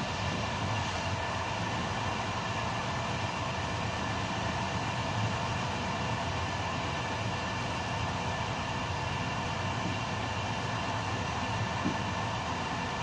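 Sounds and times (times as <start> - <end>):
train wheels rumbling on rails: 9.1 - 13.0.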